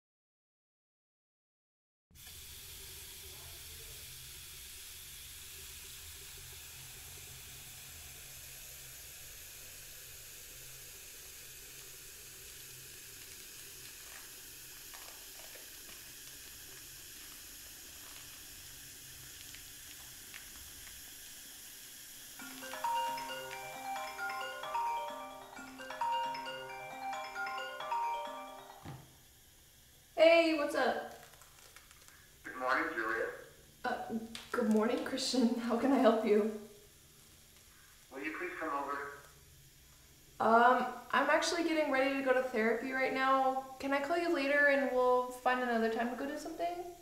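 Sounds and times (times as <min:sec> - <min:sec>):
low hiss with faint hum: 0:02.2 - 0:47.0
smartphone marimba ringtone: 0:22.4 - 0:28.9.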